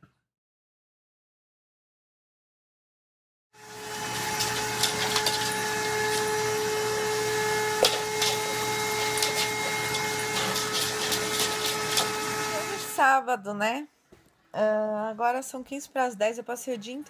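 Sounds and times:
vacuum cleaner whining: 0:03.6 - 0:13.0.

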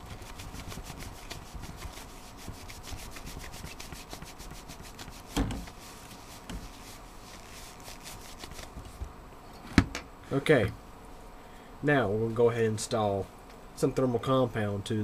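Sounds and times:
paper towel rubbing metal: 0:00.0 - 0:08.8.

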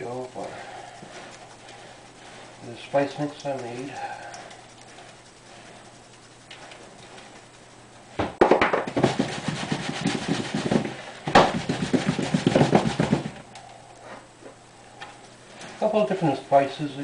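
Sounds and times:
spice container shaken: 0:00.0 - 0:07.8, 0:08.8 - 0:13.5.

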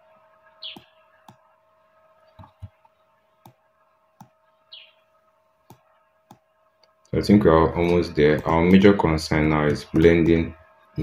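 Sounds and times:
faint electrical hum: 0:00.0 - 0:11.0.

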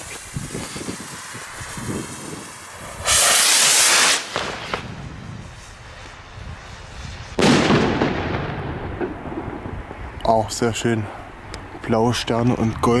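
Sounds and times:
skyrocket motor hiss: 0:00.0 - 0:04.4
firework bang rumbling: 0:01.1 - 0:05.8, 0:06.4 - 0:10.1.

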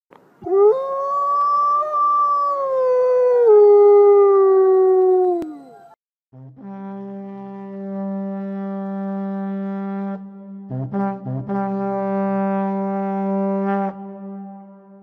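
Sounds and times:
wolf howling: 0:00.4 - 0:06.0.

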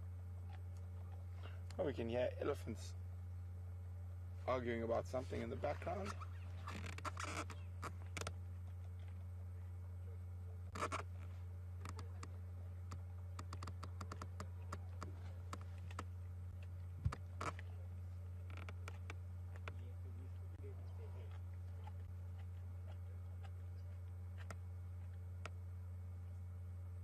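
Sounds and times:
low hum: 0:00.0 - 0:27.0
animal crunching bone: 0:10.7 - 0:25.7.

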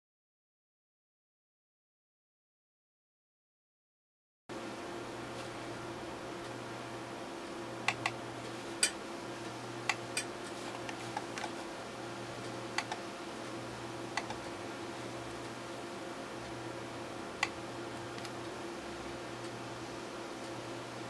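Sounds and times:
steady background hum: 0:04.5 - 0:21.0
computer mouse clicks: 0:07.9 - 0:08.2, 0:12.8 - 0:13.0, 0:14.2 - 0:14.5, 0:17.4 - 0:18.4.

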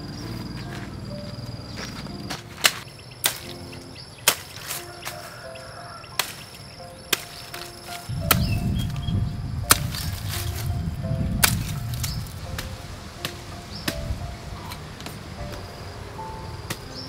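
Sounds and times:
background music: 0:00.0 - 0:17.0
knife chopping cactus: 0:09.7 - 0:10.7, 0:11.4 - 0:12.7.

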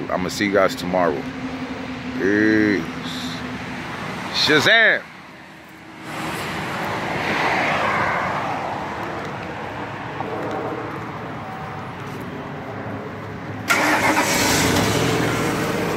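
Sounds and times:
vehicle going by: 0:00.0 - 0:15.9.

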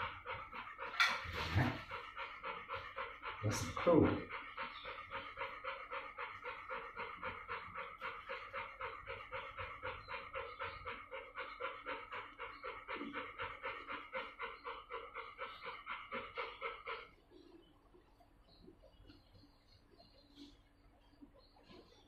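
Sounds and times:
dog panting fast: 0:00.0 - 0:17.6.

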